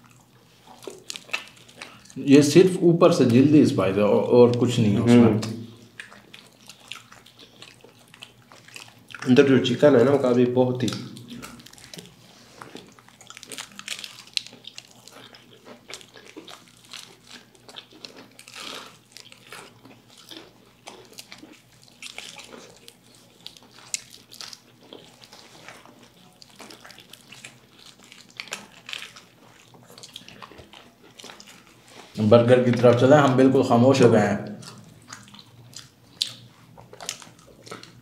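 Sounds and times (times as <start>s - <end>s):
chewing crispy fried chicken: 0.0s - 38.0s.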